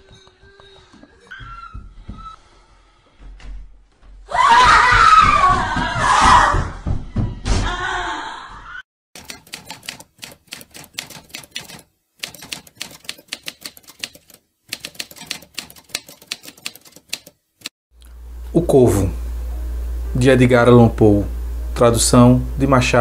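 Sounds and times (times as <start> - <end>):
person screaming: 4.3 - 6.7
typewriter keys clacking: 9.2 - 17.7.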